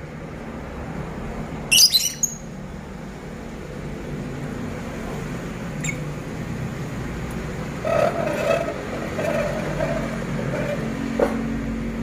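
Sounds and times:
bird shrill chirps: 0:01.7 - 0:02.5.

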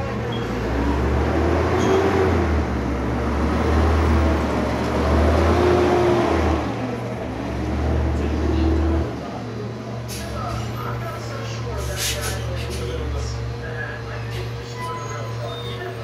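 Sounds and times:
garbage truck engine pulling away: 0:00.0 - 0:09.2.

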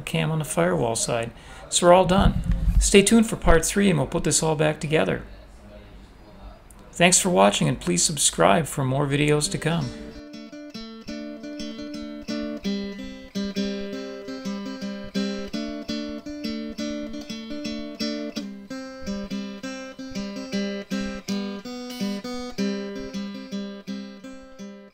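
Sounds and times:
strummed guitar chords: 0:08.8 - 0:24.9.

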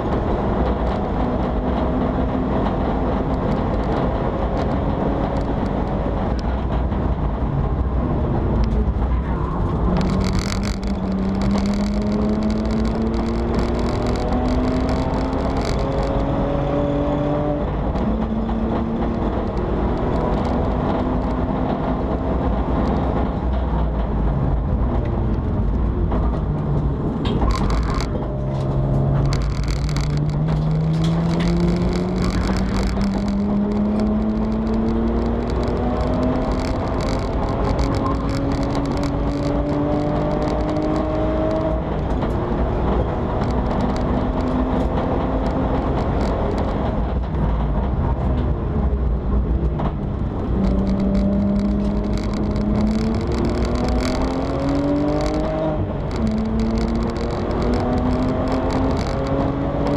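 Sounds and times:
road and wind noise: 0:00.0 - 0:59.9
race car engine revving: 0:09.6 - 0:23.4, 0:27.4 - 0:47.0, 0:49.4 - 0:59.9.

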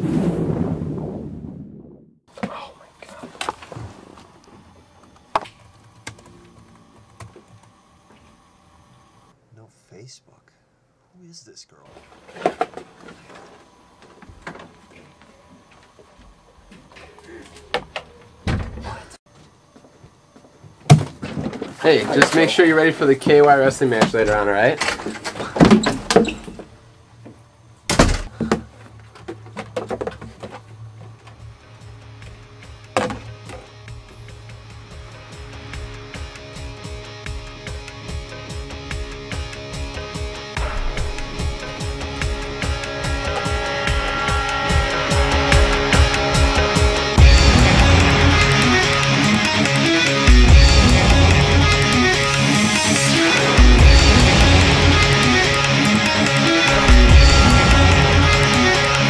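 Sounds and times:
door thudding shut: 0:18.4 - 0:18.9, 0:27.9 - 0:28.3.

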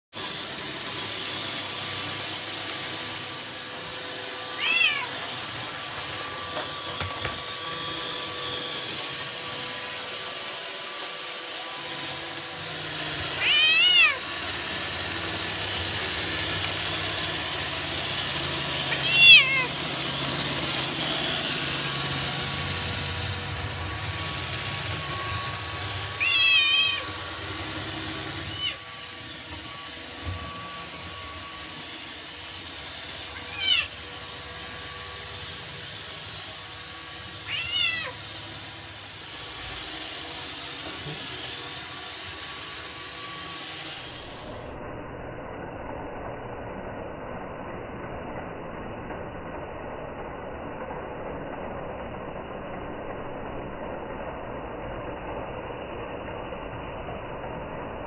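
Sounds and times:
robot vacuum humming: 0:00.1 - 0:44.8
cat meowing: 0:04.4 - 0:05.6, 0:13.3 - 0:14.3, 0:18.9 - 0:19.8, 0:26.1 - 0:27.2, 0:28.4 - 0:29.1, 0:33.3 - 0:34.1, 0:37.3 - 0:38.3.

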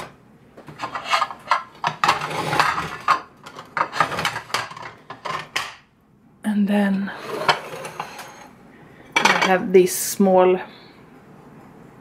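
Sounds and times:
ceramic plates clinking and scraping: 0:00.7 - 0:05.8, 0:07.2 - 0:08.5, 0:09.1 - 0:09.6.

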